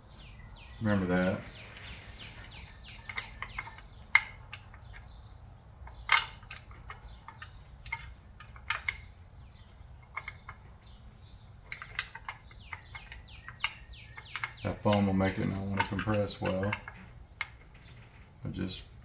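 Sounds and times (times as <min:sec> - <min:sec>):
light metallic clicks and taps: 0:11.6 - 0:18.0.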